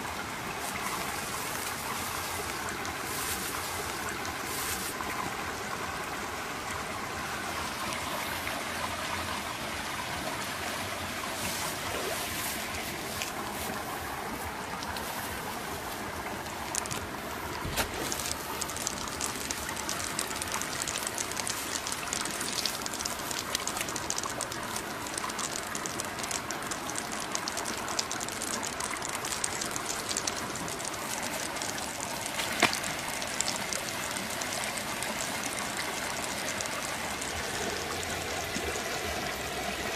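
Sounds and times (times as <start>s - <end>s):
water rushing in stream: 0.0s - 39.9s
sharp clicks: 16.4s - 37.4s.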